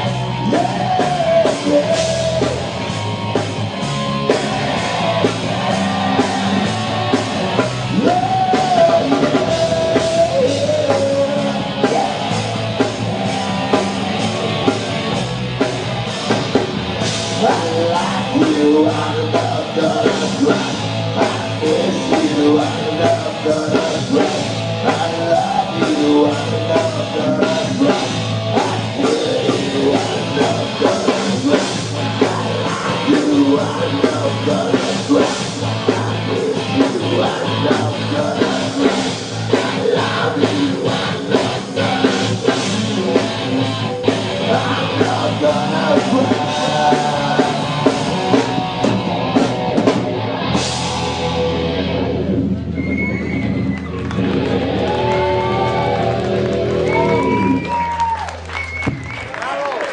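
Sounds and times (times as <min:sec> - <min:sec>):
person singing: 0:00.0 - 0:02.9, 0:03.9 - 0:14.8, 0:17.2 - 0:49.0
drum kit beat: 0:00.0 - 0:51.8
live rock band playing: 0:00.0 - 0:59.2
bass: 0:00.0 - 0:59.9.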